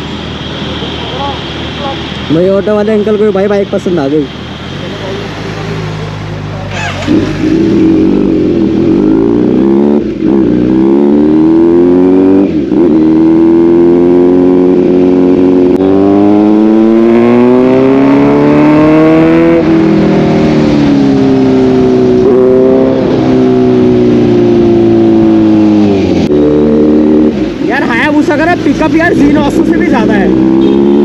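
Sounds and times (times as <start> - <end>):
motorcycle engine accelerating: 6.6 - 31.0.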